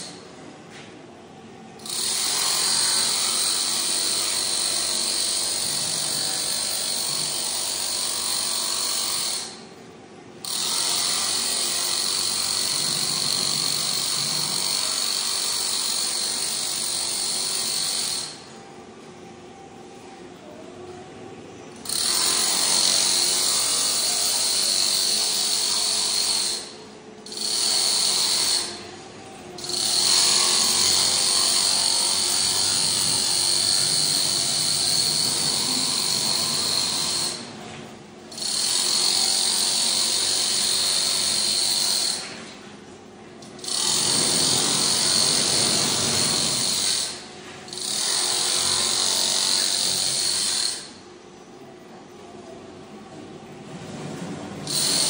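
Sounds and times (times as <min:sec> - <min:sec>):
electric power tool whining: 0:29.6 - 0:37.4.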